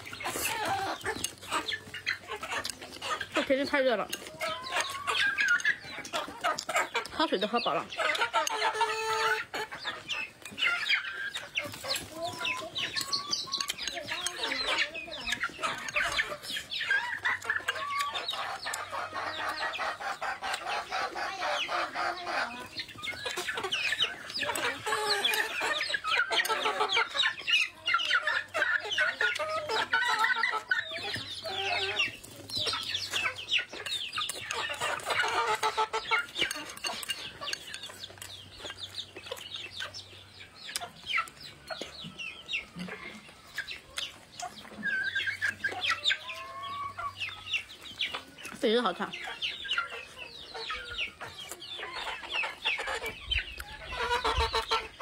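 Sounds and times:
chewing and slurping food: 0.0 - 3.4, 36.2 - 39.8
chickens clucking: 0.0 - 55.0.

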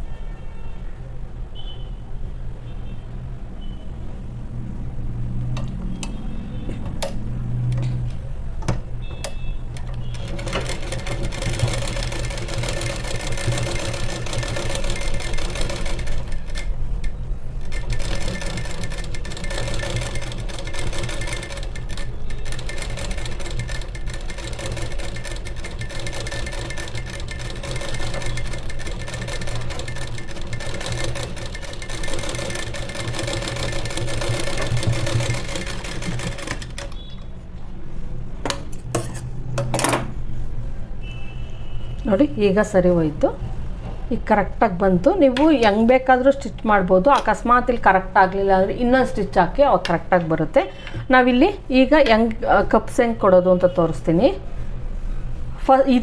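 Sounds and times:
sewing machine stitching: 9.8 - 37.1.

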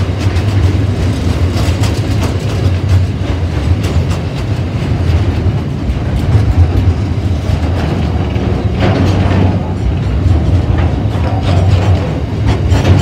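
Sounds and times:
freight train rolling past: 0.0 - 13.0
wheels clacking over rail joints: 0.0 - 13.0.

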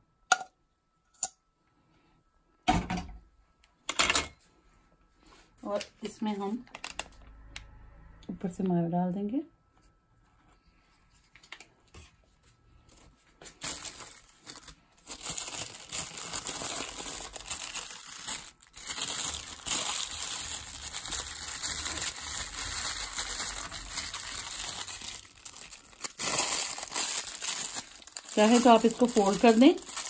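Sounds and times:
paper crinkling and rustling: 11.2 - 30.0.

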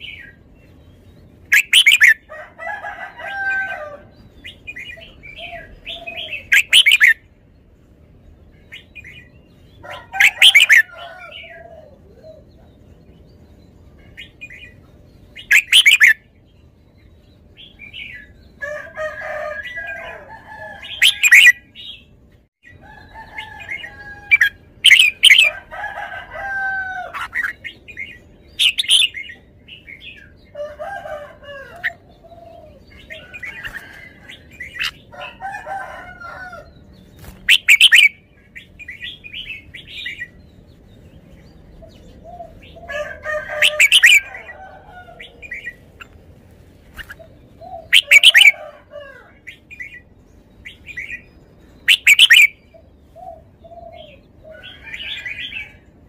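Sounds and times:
bird singing sharp phrases: 36.6 - 42.9, 49.4 - 55.8.

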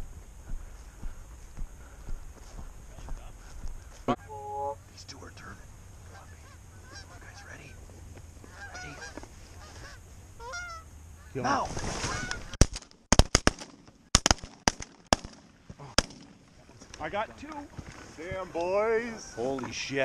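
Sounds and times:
geese honking: 3.0 - 7.8, 8.4 - 12.6, 18.7 - 19.7
shotgun blasts: 12.6 - 16.5.

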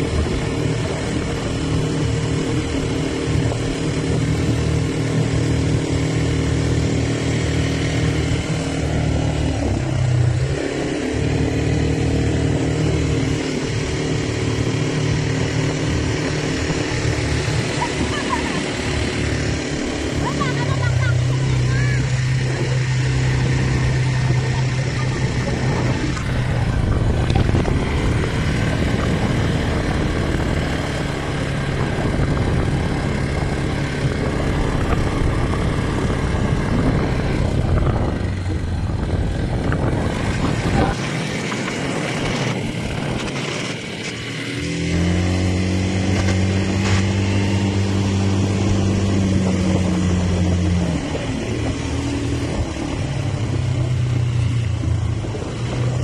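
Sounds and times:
quad bike engine running: 0.0 - 56.0
steady rushing noise: 0.0 - 56.0.

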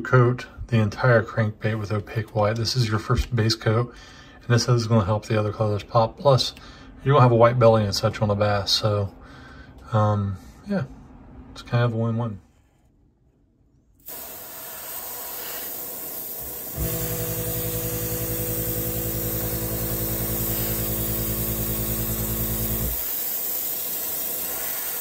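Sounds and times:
air compressor humming: 14.0 - 25.0
airbrush spraying hiss: 14.0 - 25.0.

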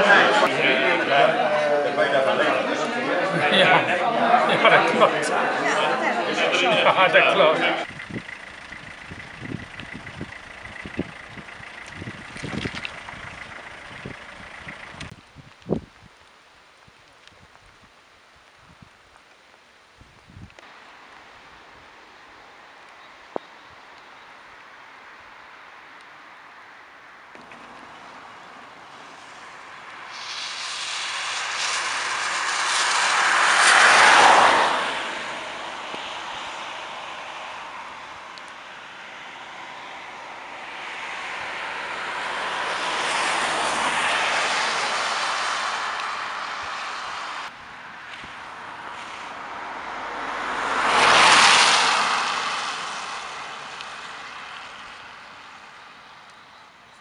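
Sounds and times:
car tyres hissing on wet road: 0.0 - 15.1, 27.4 - 56.3
distant traffic: 0.0 - 15.2, 20.6 - 57.0
rain hiss: 7.8 - 56.5.

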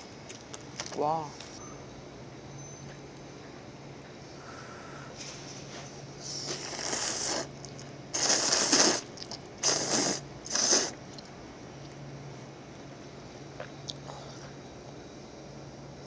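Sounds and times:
person slurping noodles: 6.3 - 7.5, 8.1 - 11.0.

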